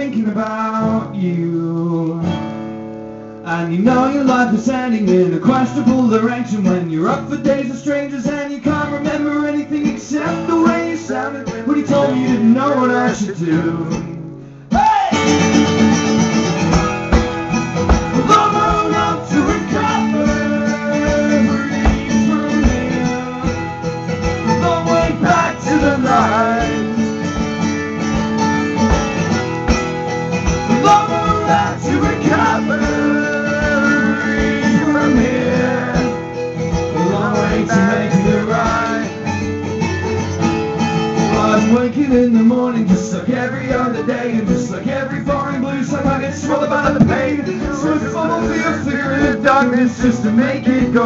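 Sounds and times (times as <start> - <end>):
acoustic guitars strumming: 0.0 - 51.0
person singing: 3.5 - 15.4, 17.9 - 27.1, 30.7 - 39.3, 41.3 - 51.0.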